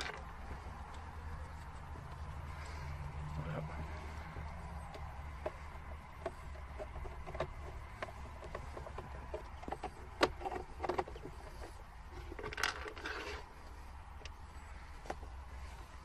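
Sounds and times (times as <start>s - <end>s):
scraping rustle: 3.8s - 16.0s.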